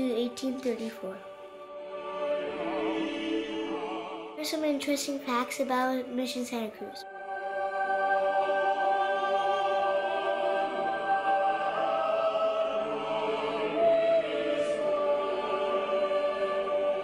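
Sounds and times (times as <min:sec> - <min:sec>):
slow music of held chords: 0:07.0 - 0:17.0.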